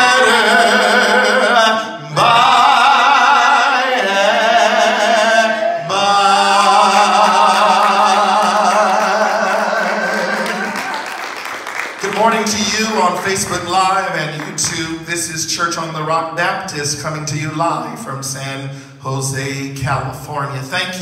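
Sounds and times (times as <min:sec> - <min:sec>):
man singing slowly: 0:00.0 - 0:11.0.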